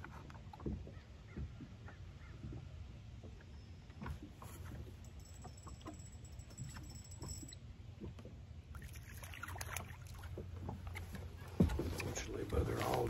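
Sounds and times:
low steady hum: 0.0 - 13.0
fish splashing: 8.7 - 11.4.

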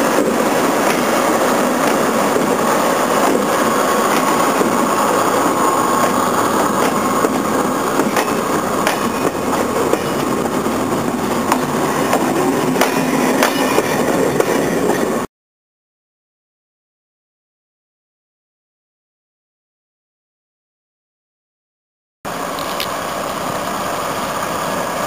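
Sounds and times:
wheels clicking over rail joints: 0.0 - 15.1, 22.4 - 23.8
diesel locomotive engines running: 0.0 - 15.3, 22.3 - 25.0.

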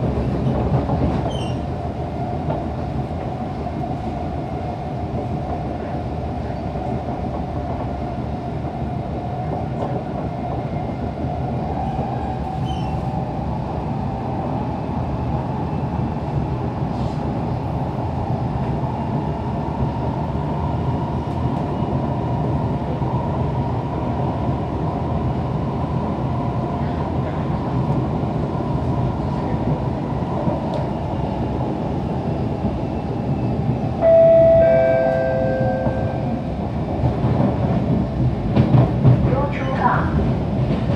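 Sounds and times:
train wheels rumbling on track: 0.0 - 40.9.

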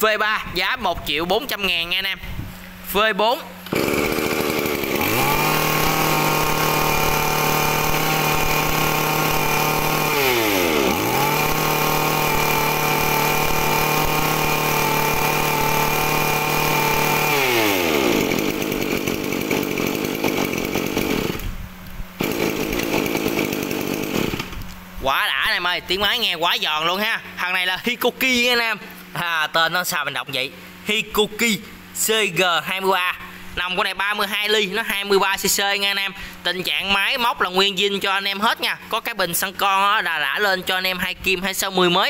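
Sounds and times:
brush cutter engine running: 3.6 - 24.8.

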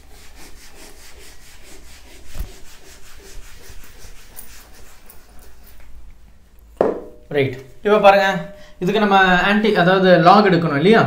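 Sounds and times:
duster rubbing on blackboard: 0.0 - 6.0
knock against board: 6.8 - 7.2.

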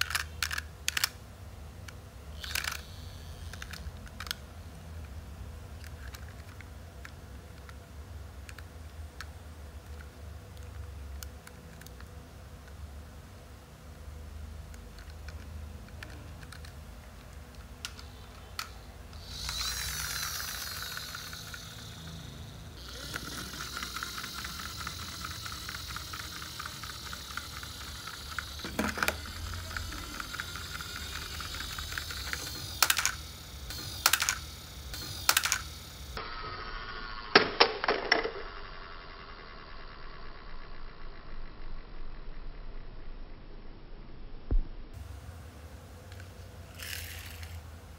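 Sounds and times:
plastic toys clacking: 0.0 - 1.2, 2.4 - 4.5, 5.8 - 7.8, 14.7 - 35.8, 46.7 - 47.6
toy truck wheels whirring: 0.0 - 1.2, 2.4 - 4.4, 5.8 - 6.7, 15.0 - 42.1, 46.7 - 47.6.

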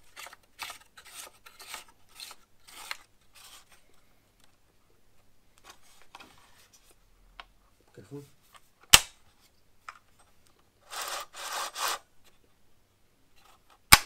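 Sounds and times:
scraping and rubbing of objects: 0.0 - 4.6, 10.8 - 12.5.

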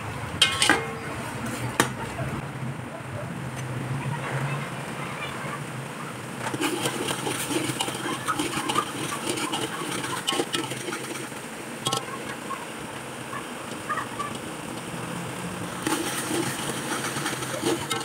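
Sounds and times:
oil frying: 0.0 - 2.0, 5.8 - 18.0
ladle scraping metal pot: 0.4 - 2.0, 6.4 - 12.5, 15.7 - 18.0.

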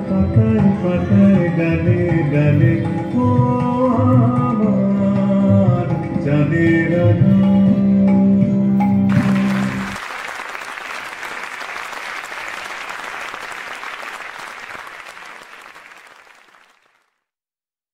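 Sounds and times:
audience applause: 9.1 - 17.2.

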